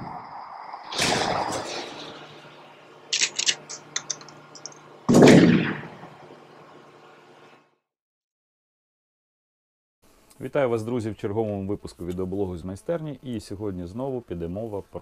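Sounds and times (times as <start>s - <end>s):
gunshot-like boom: 0.9s - 2.2s, 5.1s - 6.1s
small sharp clicks: 3.1s - 4.8s.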